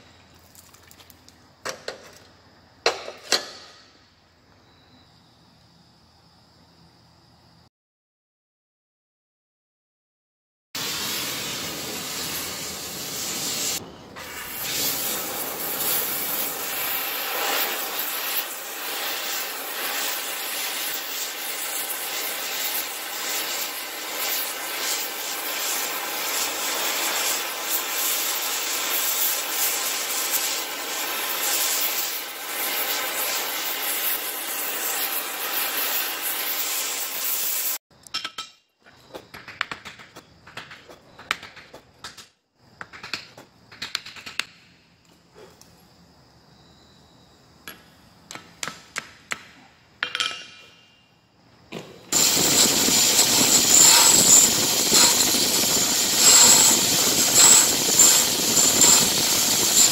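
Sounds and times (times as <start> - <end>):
cutting torch hissing: 10.8 - 37.8, 52.1 - 59.9.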